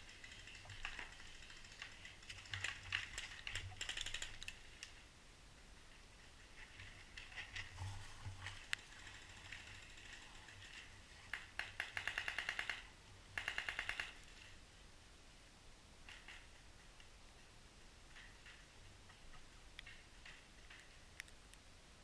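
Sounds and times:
scattered clicks: 0.0 - 5.0, 8.4 - 14.5, 18.1 - 21.7.

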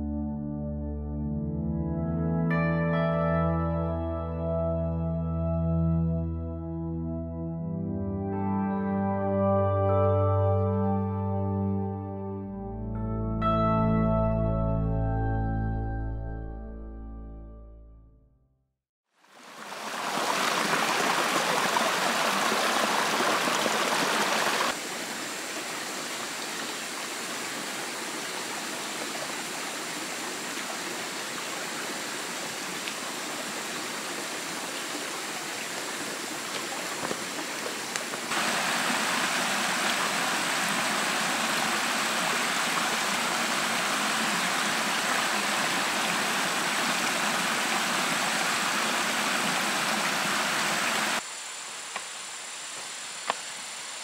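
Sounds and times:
stream rushing over rocks: 19.2 - 51.2.

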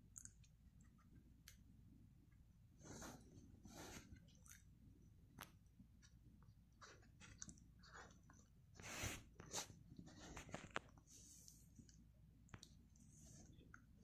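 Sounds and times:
soft rustles: 6.0 - 12.0.

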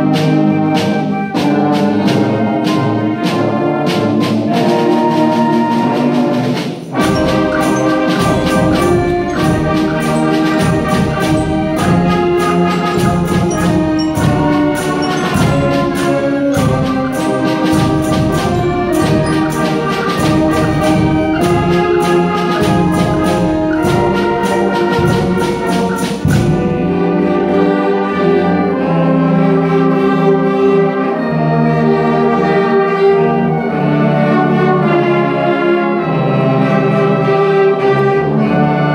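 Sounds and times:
concert band playing: 0.0 - 38.9
sharp regular percussion beats: 0.8 - 27.4.

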